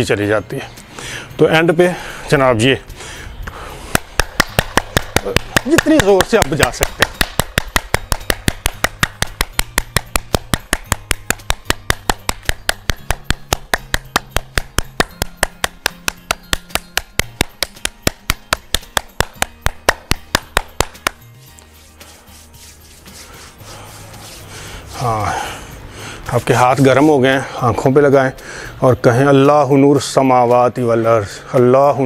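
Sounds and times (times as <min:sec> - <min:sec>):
background music with bass: 0:00.0 - 0:32.0
hands clapping fast: 0:03.9 - 0:24.5.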